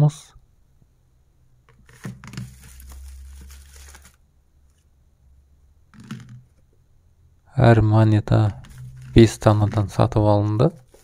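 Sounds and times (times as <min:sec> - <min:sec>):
plastic cards crinkling: 0:01.7 - 0:04.8, 0:08.5 - 0:11.0.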